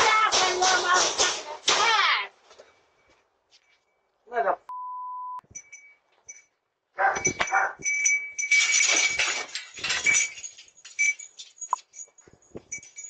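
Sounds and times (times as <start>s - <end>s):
knocks and rattles: 0.0s - 1.9s, 7.0s - 13.0s.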